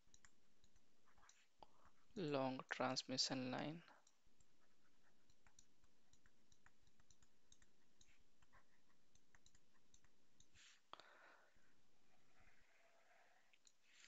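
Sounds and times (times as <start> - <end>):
stylus tapping on tablet: 4.1 - 10.6.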